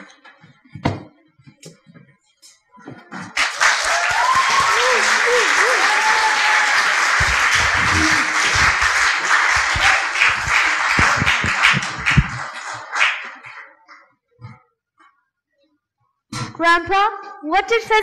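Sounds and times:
audience applauding: 3.1 - 14.0.

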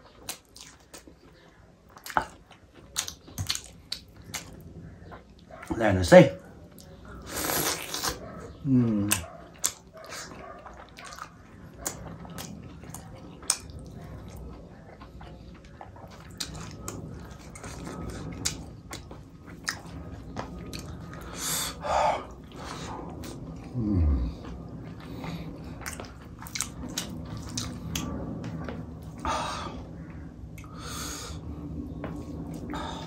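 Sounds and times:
person chewing wetly: 0.0 - 5.8, 6.5 - 23.7, 24.3 - 29.3.

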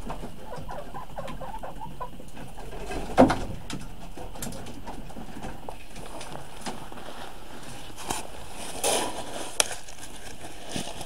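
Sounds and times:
chickens clucking softly: 0.0 - 5.7
light scratching: 5.2 - 11.0.

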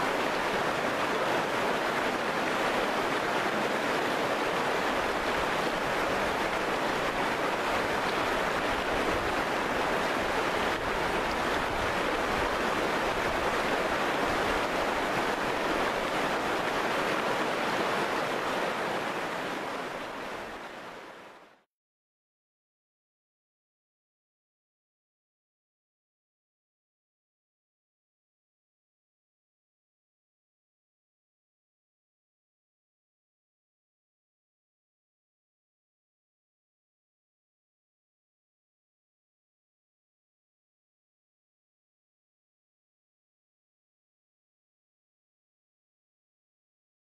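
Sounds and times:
river rushing over rocks: 0.0 - 21.6.

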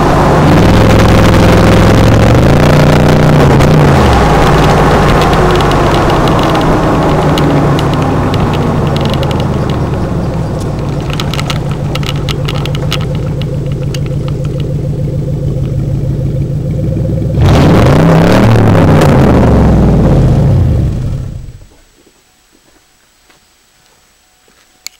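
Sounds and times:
engine revving hard: 0.0 - 13.5, 17.3 - 21.5
engine exhaust idling: 0.0 - 21.8.

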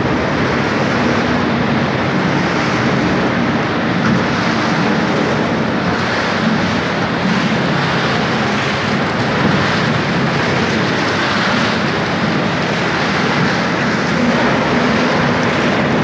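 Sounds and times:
machinery hum: 0.0 - 16.0.

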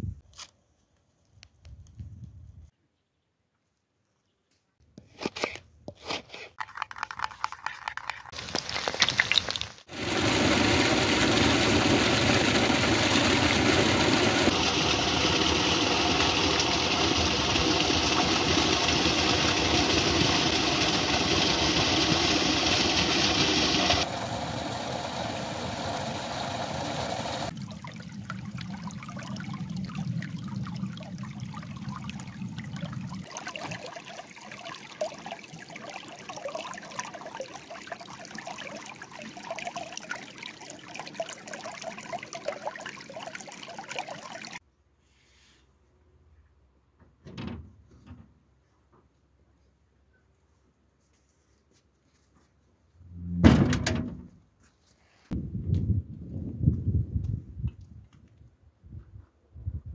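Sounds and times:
stream running over stones: 6.6 - 44.6
waterfall splashing into pool: 8.4 - 30.1, 30.7 - 44.6.

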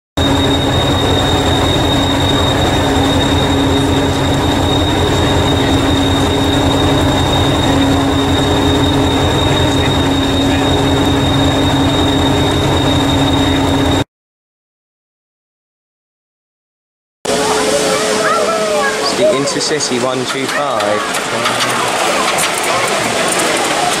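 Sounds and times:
diesel engine idling: 0.2 - 14.0
high whine: 0.2 - 14.1, 17.3 - 24.0.

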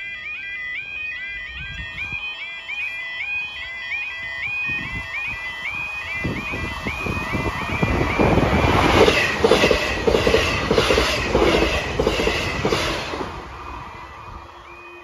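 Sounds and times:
warbling crossing alarm: 0.0 - 15.0
train wheels clattering: 8.0 - 13.7.

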